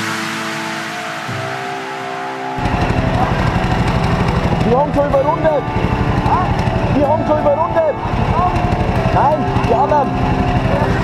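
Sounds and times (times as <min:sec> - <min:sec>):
rock music with guitar: 0:00.0 - 0:11.0
go-kart engines idling: 0:02.6 - 0:11.0.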